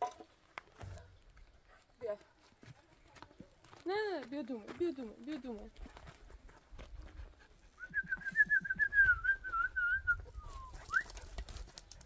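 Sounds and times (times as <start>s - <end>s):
person whistling: 7.8s - 11.2s.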